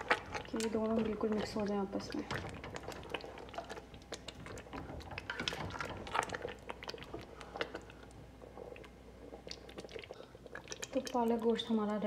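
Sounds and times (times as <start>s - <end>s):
spatula stirring: 0.0s - 11.7s
curry bubbling in a pot: 0.0s - 12.0s.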